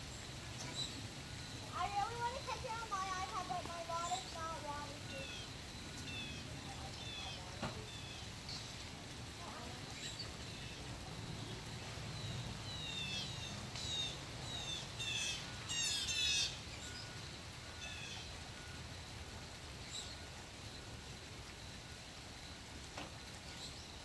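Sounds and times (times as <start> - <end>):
blue jay calling: 0.0 - 18.8.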